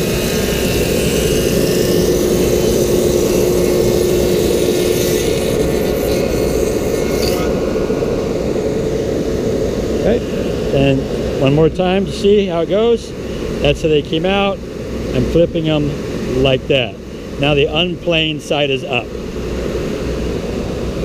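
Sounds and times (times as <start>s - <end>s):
thickness planer cutting boards: 0.0s - 10.7s
dust collector running: 0.0s - 21.0s
machine hum: 0.0s - 21.0s.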